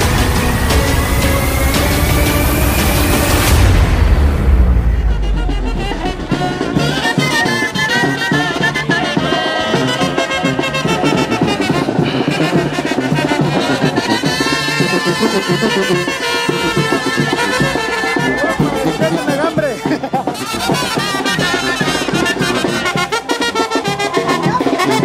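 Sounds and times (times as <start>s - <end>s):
deep rumble: 0.0s - 7.2s
brass band music: 0.0s - 25.0s.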